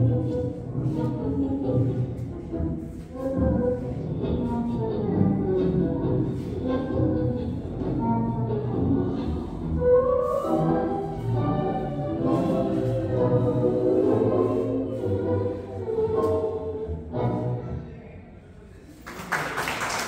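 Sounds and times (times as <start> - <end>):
tango music: 0.0 - 17.9.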